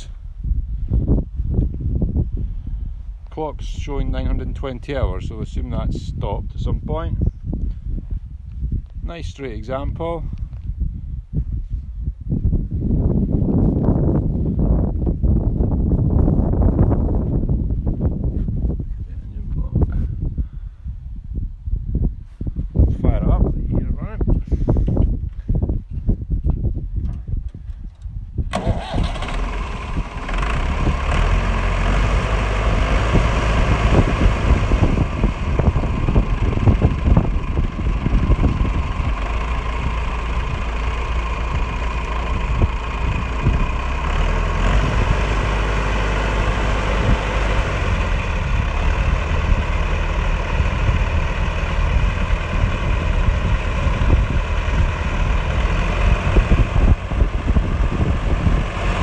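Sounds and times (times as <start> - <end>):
diesel tractor engine idling: 27.8 - 59.0.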